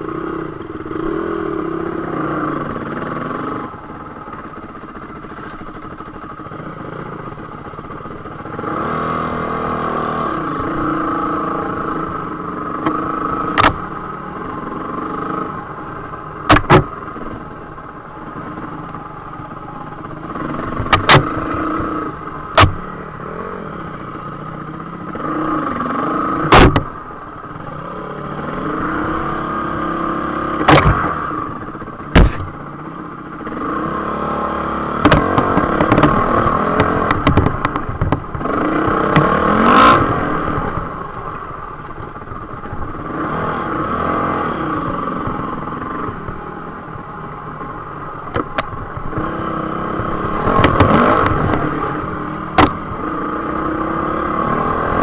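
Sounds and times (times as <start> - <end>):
dirt bike engine revving: 0.0 - 41.4, 42.5 - 46.8, 48.1 - 55.0
bike knocking over bumps: 32.1 - 32.5.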